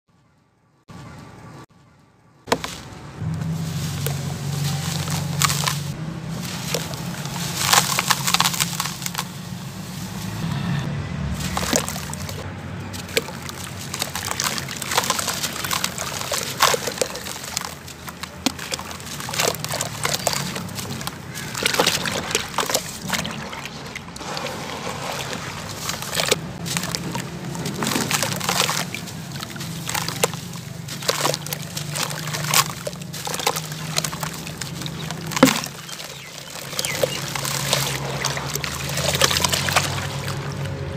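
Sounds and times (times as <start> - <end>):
gritty crunching of cement chunks: 2.5 - 2.8, 3.6 - 9.5, 11.4 - 40.7
soapy water sloshing: 2.5 - 10.6, 11.3 - 40.9
falling grit: 11.3 - 40.7.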